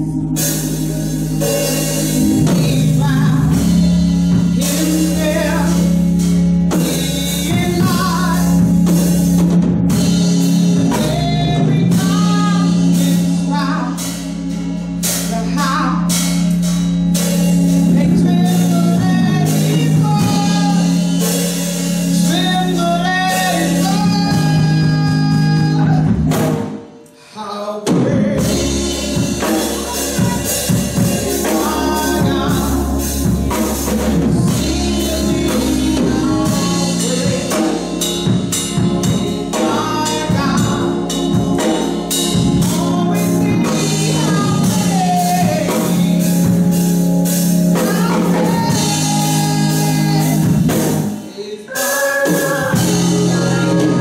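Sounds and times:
women singing gospel song: 0:00.0 - 0:06.0, 0:28.0 - 0:46.8, 0:47.6 - 0:50.8, 0:51.4 - 0:54.0
instrumental accompaniment with drums: 0:00.0 - 0:27.1, 0:27.8 - 0:54.0.

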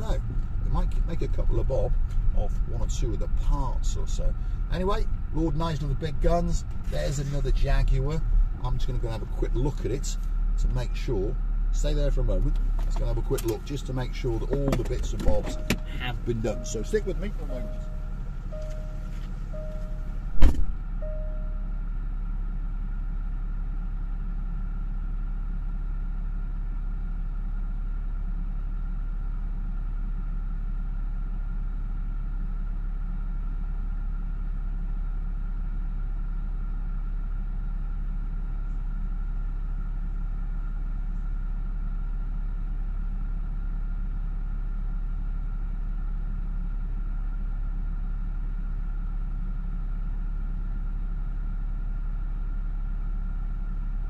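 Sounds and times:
car engine idling: 0:00.0 - 0:54.0
car door slamming: 0:14.5 - 0:21.0
repeating warning chime: 0:15.3 - 0:20.4, 0:21.0 - 0:21.7.

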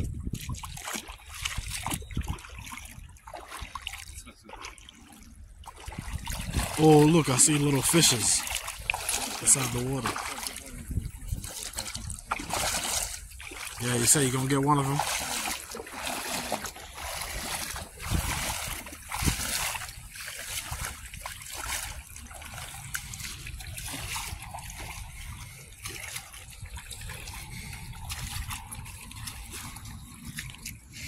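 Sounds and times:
seawater splashing around legs: 0:00.0 - 0:31.0.

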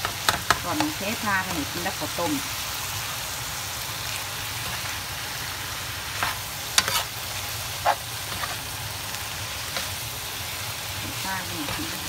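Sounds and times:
food sizzling in a frying pan: 0:00.0 - 0:12.0
spatula scraping a pan: 0:06.0 - 0:08.8.

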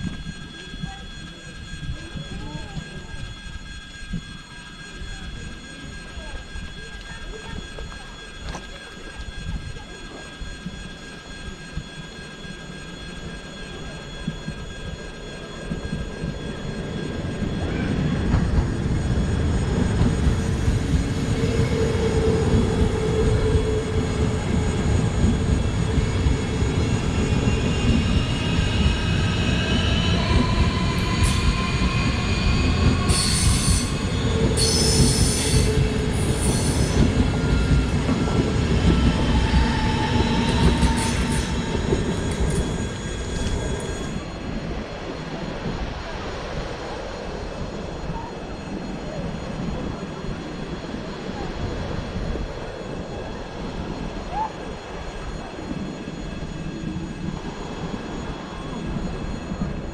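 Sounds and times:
high whining tones: 0:00.0 - 0:59.9
train wheels rumbling on rails: 0:00.0 - 0:59.9
hissing squeals: 0:10.2 - 0:44.6.

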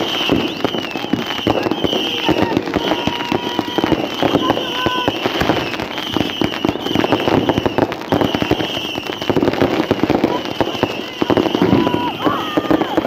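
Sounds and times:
high whistling tone: 0:00.0 - 0:09.4
fireworks crackling and banging: 0:00.0 - 0:13.0.

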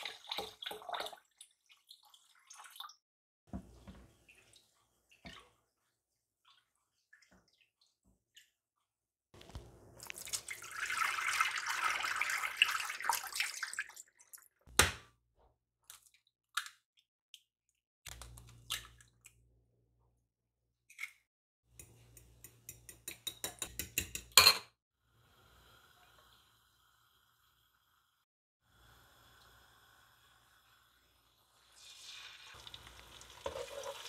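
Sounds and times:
water swishing rice in bowl: 0:10.0 - 0:14.4.

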